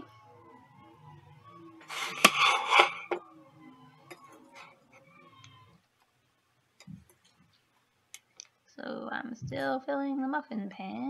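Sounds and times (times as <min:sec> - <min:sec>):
metal ladle scraping metal bowl: 0:01.9 - 0:03.2.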